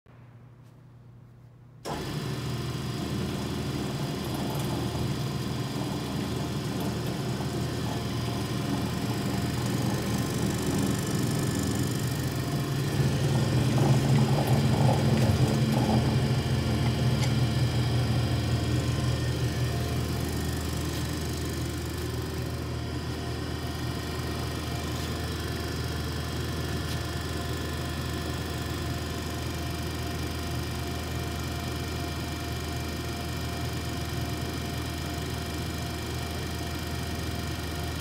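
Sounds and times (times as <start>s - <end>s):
bandsaw running: 3.1s - 21.7s.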